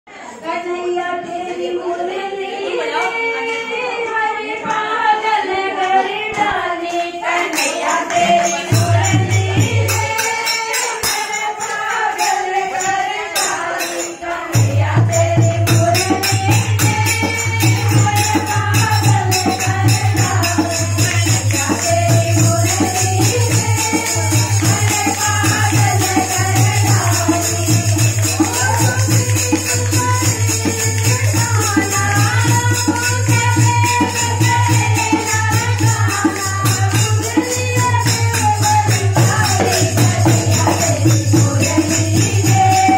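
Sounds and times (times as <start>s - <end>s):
women singing devotional song: 0.1s - 42.9s
jingling hand percussion: 2.8s - 42.9s
hand drum beat: 7.6s - 11.3s, 12.8s - 42.9s.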